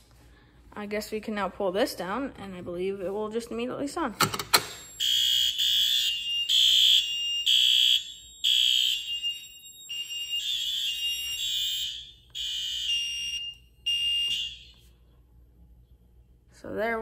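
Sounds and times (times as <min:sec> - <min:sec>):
fire alarm horns pulsing: 0:04.8 - 0:15.1.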